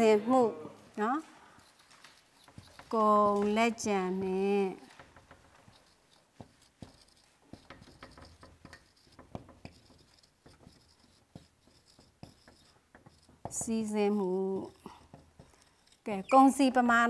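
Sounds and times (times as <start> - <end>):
marker writing on whiteboard: 0.9 - 17.0.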